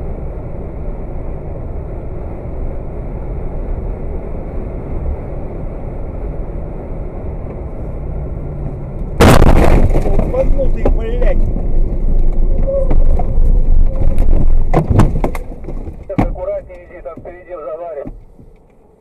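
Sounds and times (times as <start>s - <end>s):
vehicle road rumble: 0.0s - 19.0s
loud bang: 9.2s - 11.4s.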